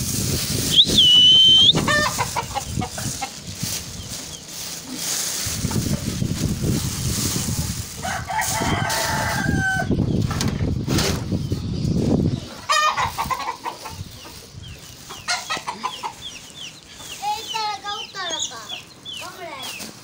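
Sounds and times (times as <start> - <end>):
plastic bags rustling: 0.0 - 11.5, 12.8 - 20.0
chickens clucking: 0.3 - 20.0
rooster crowing: 8.0 - 10.0.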